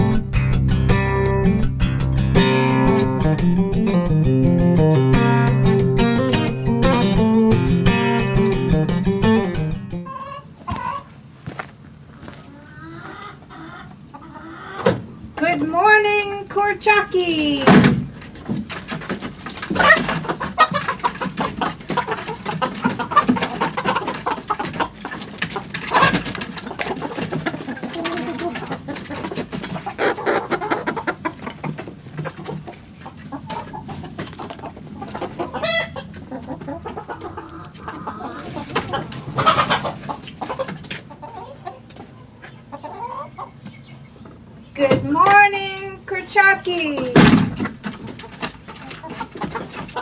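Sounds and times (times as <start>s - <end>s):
chickens clucking: 10.0s - 50.0s
knocks and rustles: 17.6s - 30.0s.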